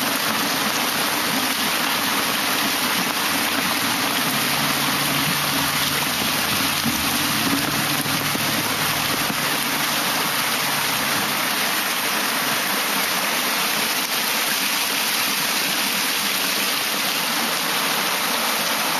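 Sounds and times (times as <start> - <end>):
heavy rain hissing: 0.0 - 18.9
low hum: 3.4 - 12.2.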